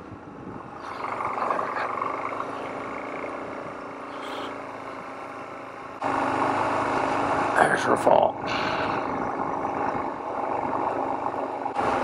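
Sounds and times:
wind: 0:00.0 - 0:12.0
motorcycle engine running: 0:00.8 - 0:07.8.

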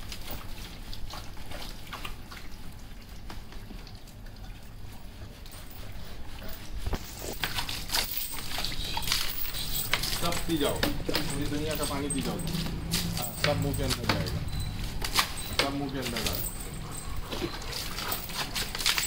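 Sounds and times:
water trickling and dripping: 0:00.0 - 0:19.0
dog being rubbed down: 0:05.6 - 0:14.1.

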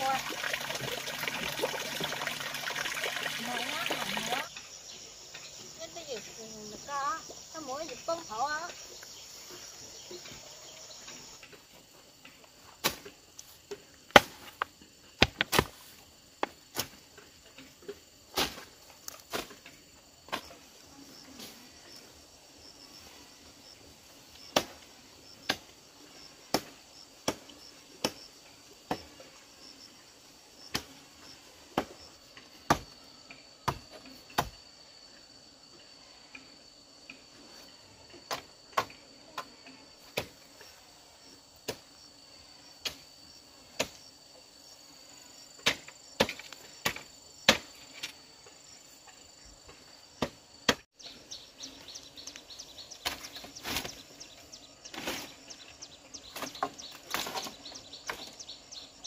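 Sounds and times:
insects chirring: 0:00.0 - 0:59.0
hand tool chopping into ground: 0:14.1 - 0:17.0, 0:18.3 - 0:20.6, 0:32.6 - 0:33.0, 0:33.6 - 0:34.6, 0:43.8 - 0:44.0, 0:45.6 - 0:48.2, 0:50.2 - 0:50.9, 0:53.0 - 0:54.1, 0:56.2 - 0:58.4.

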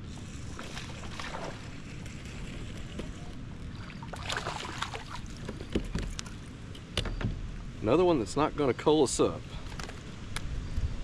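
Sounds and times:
wind rumble on microphone: 0:00.0 - 0:11.0
fish splashing at the surface: 0:04.0 - 0:05.4.

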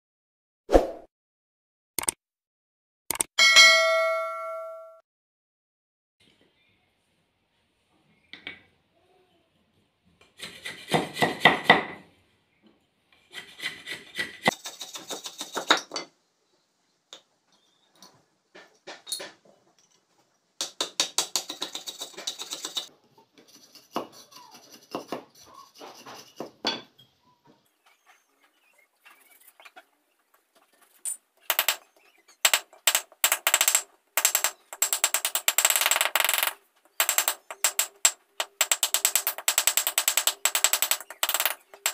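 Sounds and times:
knife scraping bamboo: 0:21.2 - 0:26.6.

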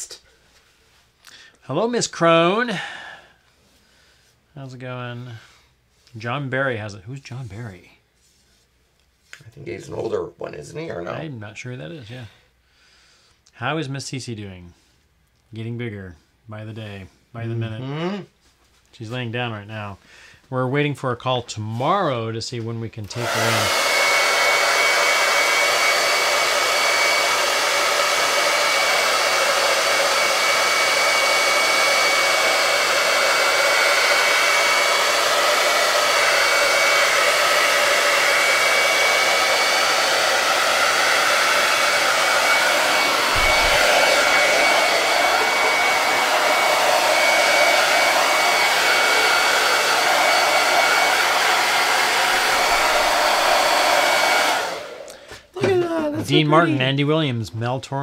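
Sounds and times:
hot-air dryer whining: 0:23.0 - 0:56.9.

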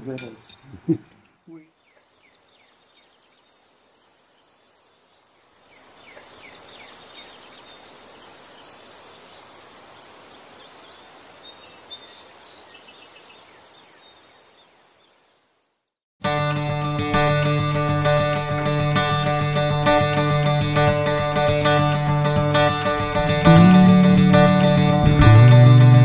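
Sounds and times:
small birds chirping: 0:00.6 - 0:15.4.

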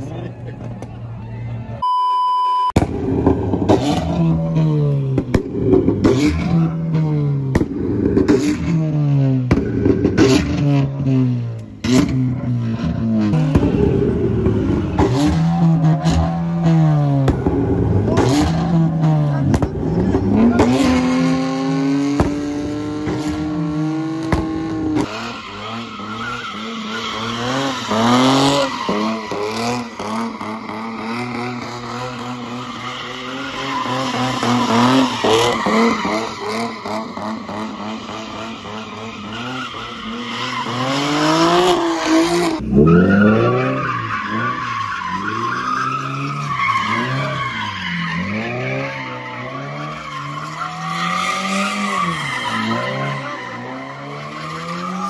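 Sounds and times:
car engine revving: 0:02.8 - 0:55.0
tyres squealing on pavement: 0:23.0 - 0:55.0.

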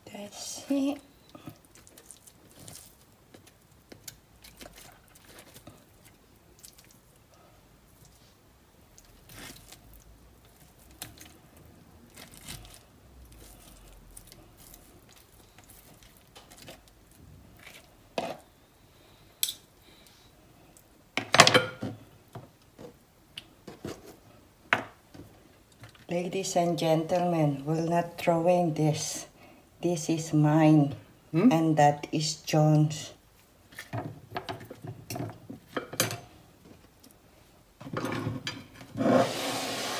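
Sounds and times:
meat tearing: 0:01.6 - 0:07.1, 0:08.9 - 0:11.4, 0:12.1 - 0:17.9.

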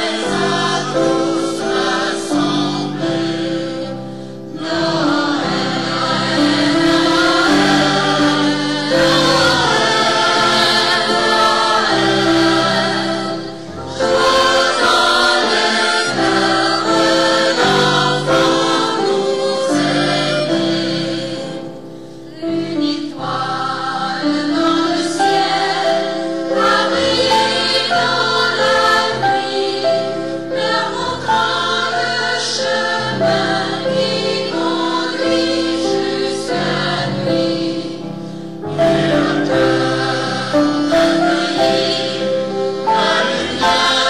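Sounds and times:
mixed choir singing a carol: 0:00.0 - 0:44.0.

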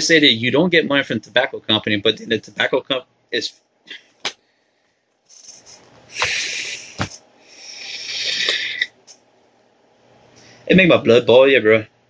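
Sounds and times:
e-cigarette draw hissing: 0:05.3 - 0:08.9.

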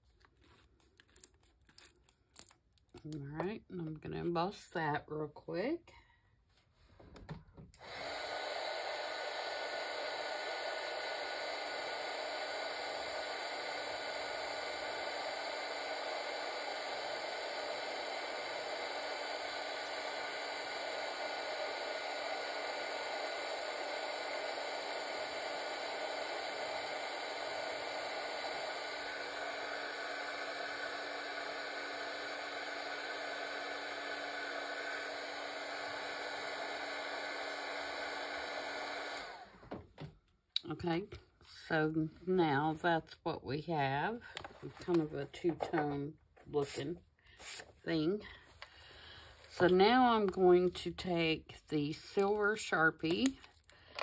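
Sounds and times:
heat tool fan whir and hum: 0:07.8 - 0:39.5.

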